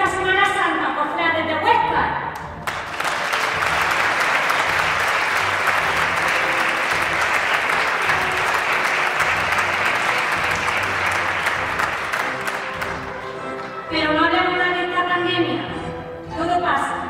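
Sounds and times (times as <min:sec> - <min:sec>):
audience applauding: 0:02.6 - 0:13.8.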